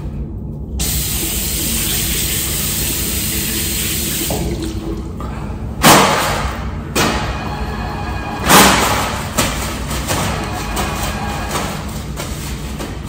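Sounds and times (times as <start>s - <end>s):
tap water running: 0.8s - 5.2s
sudden loud bursts of noise: 5.8s - 9.4s.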